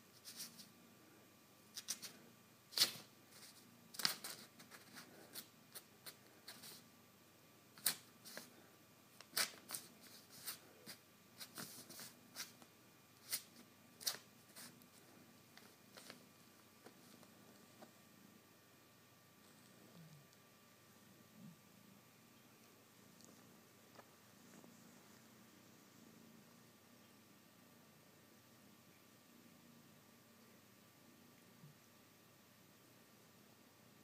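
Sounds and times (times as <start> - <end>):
kitten clawing rustling paper: 1.8 - 6.8, 9.2 - 12.6, 13.2 - 14.9, 15.6 - 16.2.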